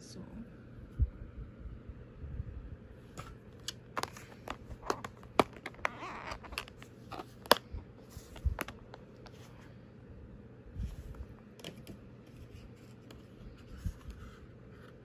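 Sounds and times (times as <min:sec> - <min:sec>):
loose nail tips rustling: 0:03.5 - 0:09.6
plastic clicks and taps: 0:03.6 - 0:06.8.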